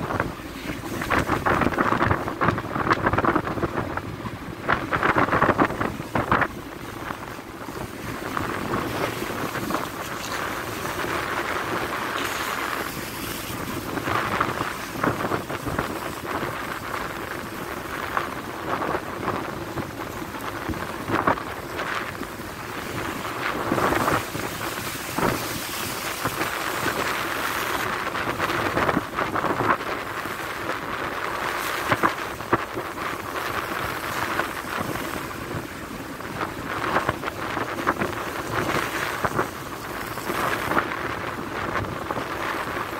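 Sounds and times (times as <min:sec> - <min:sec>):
rough sea rushing along a hull: 0:00.0 - 0:42.9
wave slapping against ship side: 0:00.0 - 0:42.9
wind buffeting the microphone: 0:00.0 - 0:42.9.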